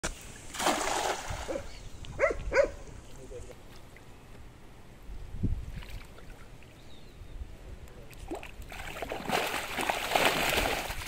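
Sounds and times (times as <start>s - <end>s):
fish thrashing and splashing in water: 0.5s - 1.5s, 8.3s - 11.0s.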